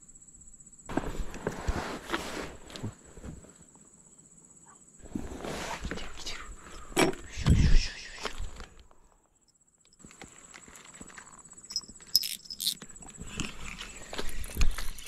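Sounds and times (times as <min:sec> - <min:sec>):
crickets trilling: 0:00.0 - 0:15.0
clothing rustle: 0:00.9 - 0:03.7.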